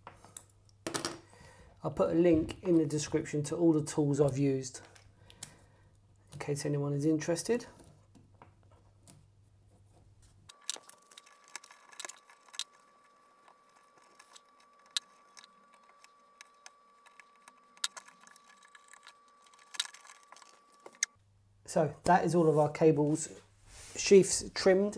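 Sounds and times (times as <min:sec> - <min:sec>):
fingers handling copper wire: 0:07.7 - 0:21.1.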